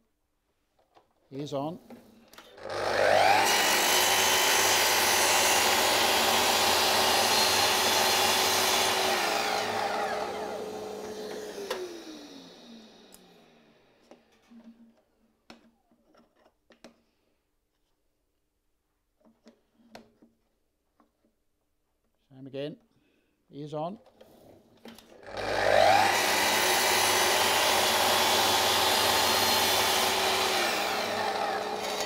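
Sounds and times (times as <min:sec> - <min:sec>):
mitre saw whining: 0:02.4 - 0:14.0, 0:25.2 - 0:32.0
saw blade cutting wood: 0:02.8 - 0:12.0, 0:25.4 - 0:32.0.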